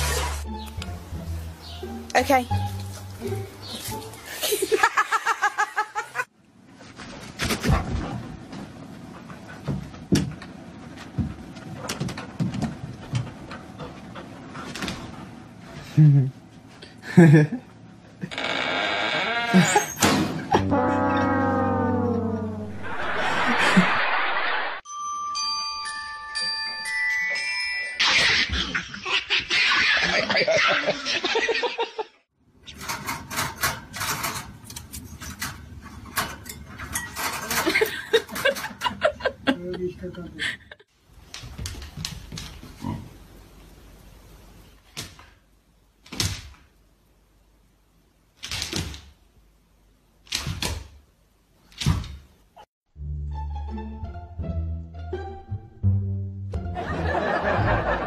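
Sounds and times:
falling horn-like tone: 20.6s - 24.8s
bright chime notes: 24.9s - 28.0s.

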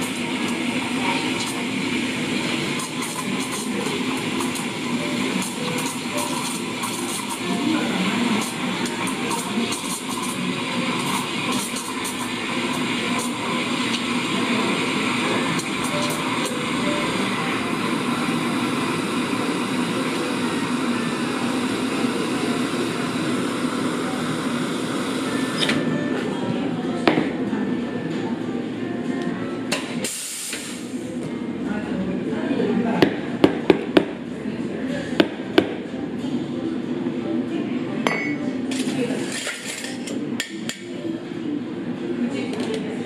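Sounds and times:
background murmur: 0.0s - 43.0s
steam wand hissing: 30.0s - 31.0s
metal and dishes clinking: 38.0s - 40.9s.

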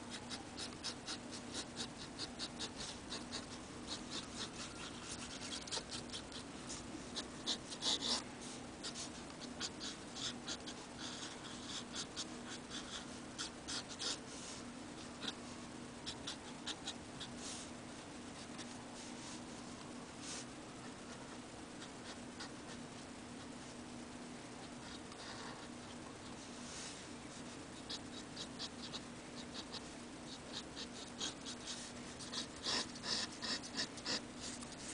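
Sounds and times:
low steady hum: 0.0s - 34.9s
pen nib scratching paper: 0.1s - 8.2s.

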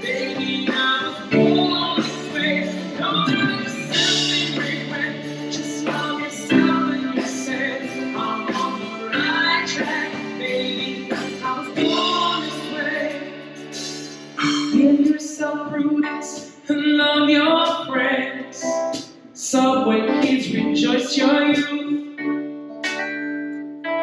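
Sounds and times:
backing vocals: 0.0s - 16.2s
lead singer: 0.0s - 23.2s
keyboard: 0.0s - 24.0s
live pop band: 0.0s - 24.0s.

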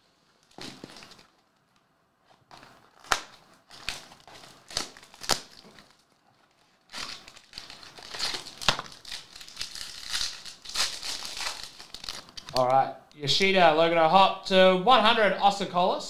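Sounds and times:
card and foil crinkling: 0.4s - 1.4s, 2.5s - 12.6s
cardboard clicks and snaps: 3.0s - 4.0s.

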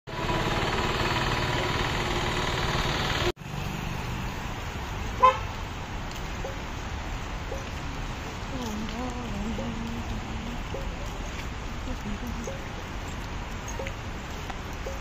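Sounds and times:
road ambience: 0.1s - 15.0s
street noise: 0.1s - 15.0s
vehicle horn toot: 5.2s - 5.5s.

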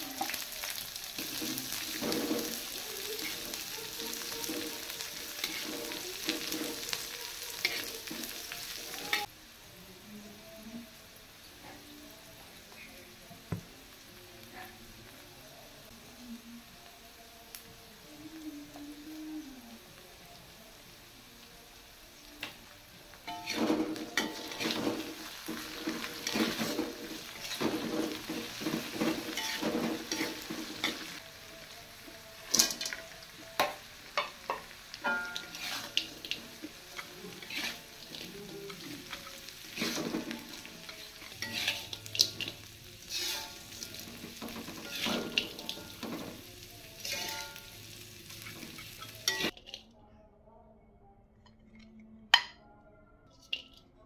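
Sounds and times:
food sizzling in oil: 0.0s - 49.6s
metal spatula scraping wok: 1.2s - 9.3s, 23.3s - 31.2s, 35.0s - 49.8s.

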